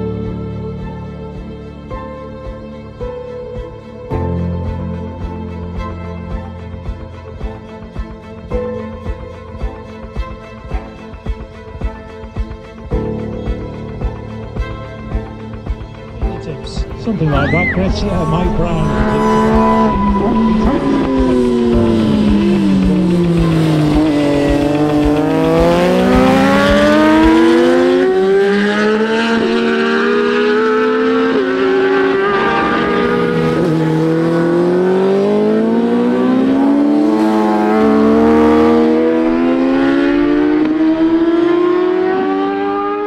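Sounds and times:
racing motorcycle engines revving: 0:16.6 - 0:43.0.

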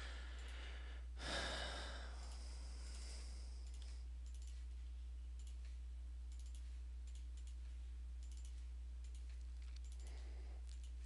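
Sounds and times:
low electrical hum: 0:00.0 - 0:11.0
computer mouse clicking: 0:03.6 - 0:04.8, 0:05.4 - 0:11.0.

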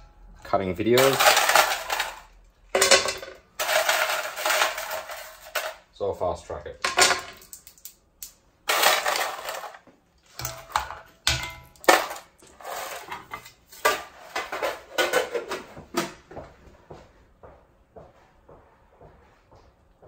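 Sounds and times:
ice cubes clattering in pan: 0:01.0 - 0:05.8, 0:08.6 - 0:09.8, 0:10.4 - 0:15.3.

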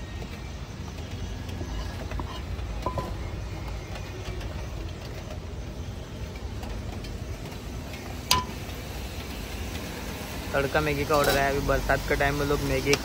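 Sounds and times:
cooking utensils knocking: 0:08.3 - 0:08.6.

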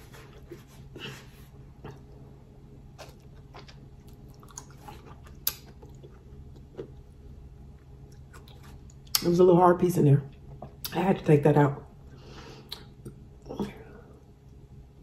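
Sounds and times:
quiet chewing: 0:00.0 - 0:02.3, 0:02.9 - 0:09.2
steady low hum: 0:00.0 - 0:15.0
small mouth clicks: 0:12.7 - 0:13.2.

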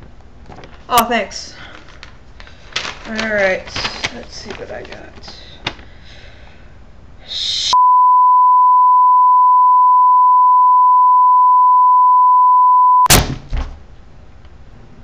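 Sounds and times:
censor beep tone: 0:07.8 - 0:13.1.

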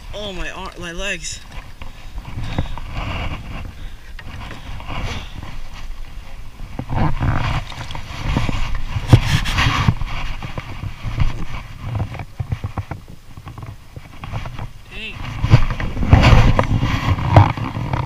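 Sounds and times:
knocks and scrapes in a kayak: 0:00.0 - 0:18.0.

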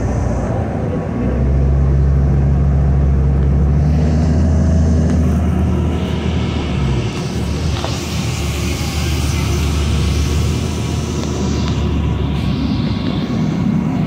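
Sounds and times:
bus engine drone: 0:00.0 - 0:14.0
air hiss: 0:03.7 - 0:14.0.

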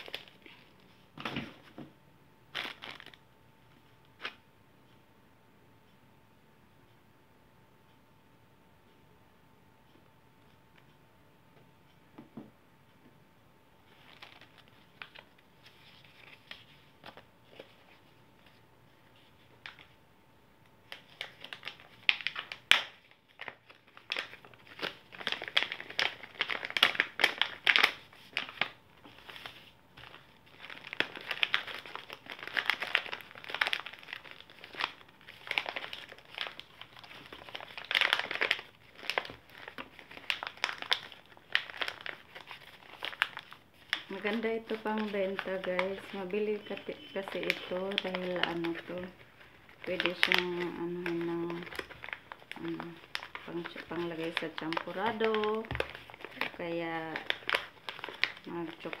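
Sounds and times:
packaging pouches crinkling: 0:00.0 - 0:01.7, 0:02.5 - 0:03.2, 0:13.9 - 0:18.6, 0:20.9 - 0:59.0.

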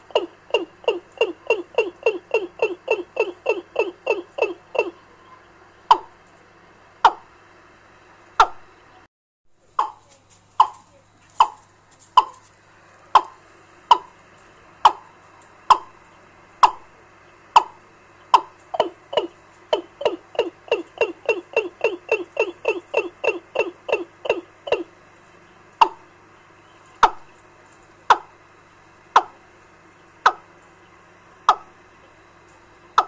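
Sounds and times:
faint electrical hum: 0:00.0 - 0:33.0
bird lure call from speaker: 0:18.4 - 0:24.9.

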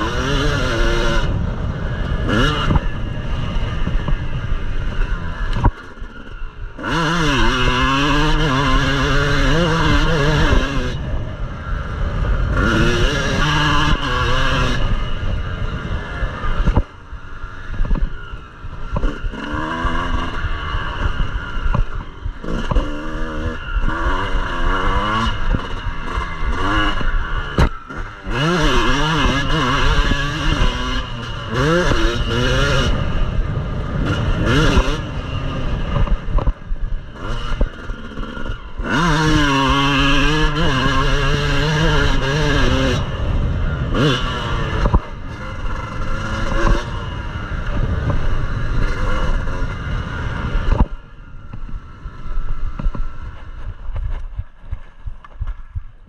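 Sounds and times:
motocross bike engine revving: 0:00.0 - 0:56.0.

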